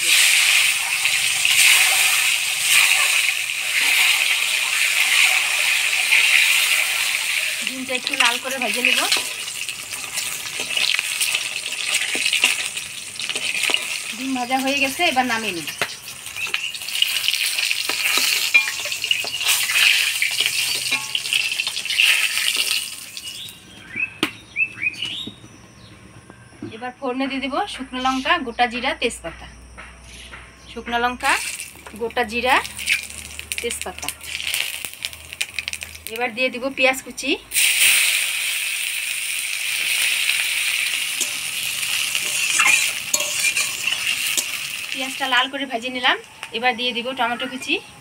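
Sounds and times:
hot oil sizzling and crackling: 0.0s - 25.6s, 31.1s - 47.8s
ladle scraping pan: 17.0s - 23.0s, 39.7s - 45.0s.

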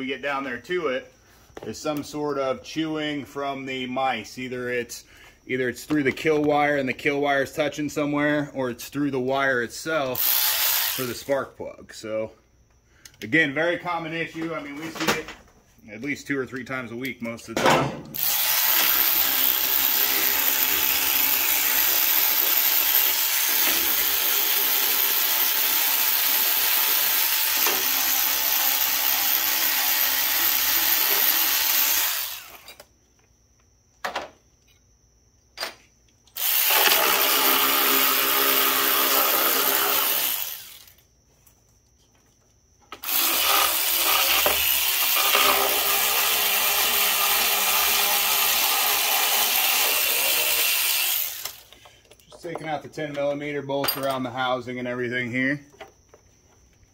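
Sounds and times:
power driver whirring: 10.2s - 11.1s, 18.2s - 32.9s, 36.3s - 40.9s, 43.0s - 51.7s.

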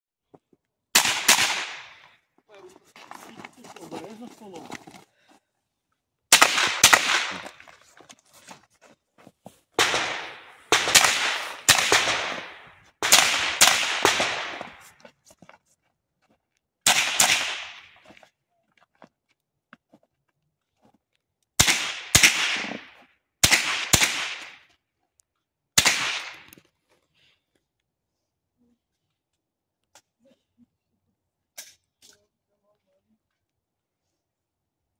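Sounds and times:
pistol shots with echo: 1.0s - 2.0s, 6.3s - 7.6s, 9.8s - 14.8s, 16.9s - 17.9s, 21.6s - 24.6s, 25.8s - 26.4s.

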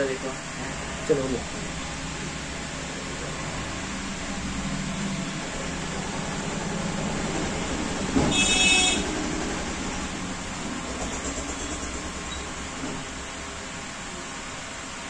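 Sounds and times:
street traffic noise: 0.0s - 15.0s
vehicle horn: 8.2s - 9.2s.

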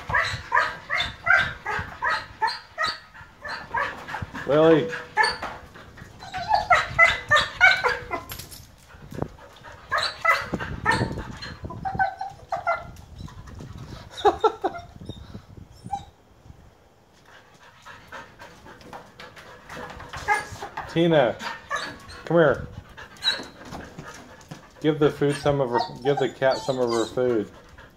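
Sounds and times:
dog yipping and whining: 0.0s - 4.2s, 4.9s - 8.5s, 9.9s - 16.2s, 19.8s - 20.8s, 21.4s - 22.3s, 23.0s - 24.2s, 25.2s - 27.6s.

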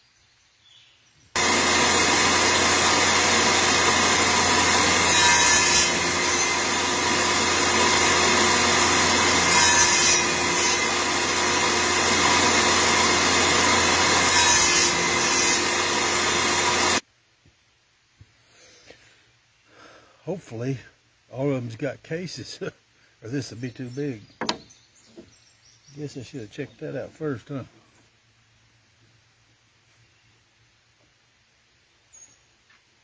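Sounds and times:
table saw cutting wood: 1.4s - 17.0s.

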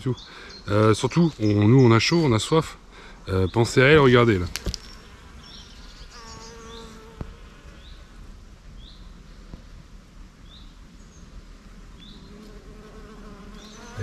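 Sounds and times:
bird chirping: 0.0s - 2.3s, 3.2s - 7.1s, 8.8s - 9.5s, 10.4s - 11.3s, 12.0s - 12.4s, 13.5s - 14.0s
honeybees buzzing: 3.2s - 9.2s, 11.6s - 14.0s.

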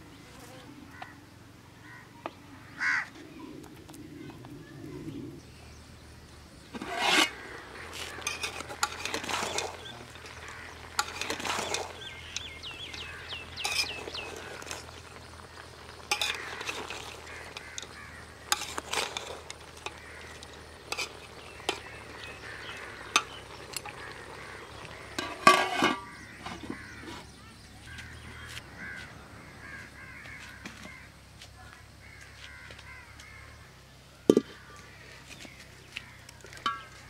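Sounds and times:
crows cawing: 0.9s - 1.2s, 1.8s - 3.2s, 7.3s - 12.0s, 12.9s - 20.8s, 21.7s - 27.2s, 27.9s - 33.6s
metal ladle scraping cooking pot: 6.7s - 27.3s, 36.5s - 37.0s.

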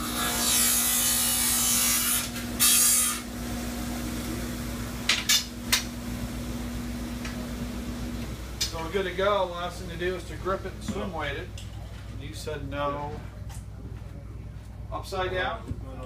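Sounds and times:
power saw cutting: 0.0s - 3.3s
motor hum: 0.0s - 16.0s.

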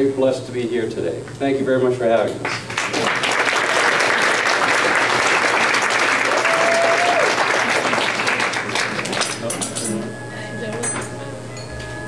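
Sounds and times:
audience applauding: 2.4s - 9.5s
short held tone: 9.5s - 12.0s.

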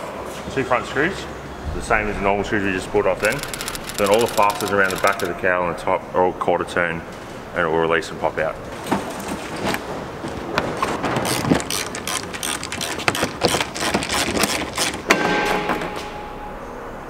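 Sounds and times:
screwdriver clicks and rattles: 3.2s - 5.3s, 11.2s - 15.0s.

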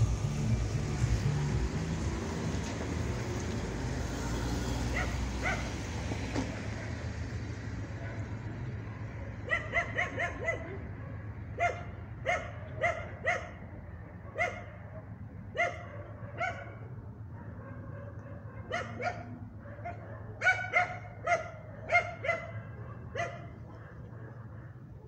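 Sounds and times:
dog barking: 4.9s - 5.8s, 7.9s - 25.0s.

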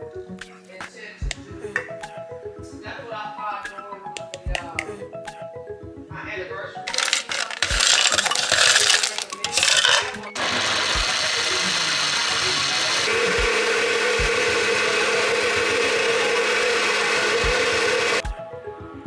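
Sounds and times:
blender motor whine: 6.9s - 18.2s
frozen fruit rattling in blender: 6.9s - 18.2s.

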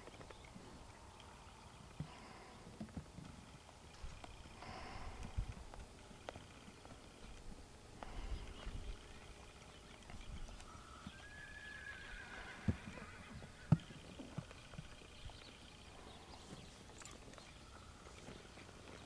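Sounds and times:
horse whinnying: 10.9s - 13.9s
hoof knocks: 12.6s - 19.0s.

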